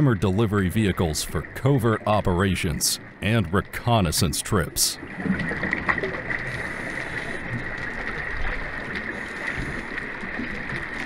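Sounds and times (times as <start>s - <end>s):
underwater rushing noise: 0.0s - 11.0s
faint crackles: 4.8s - 11.0s.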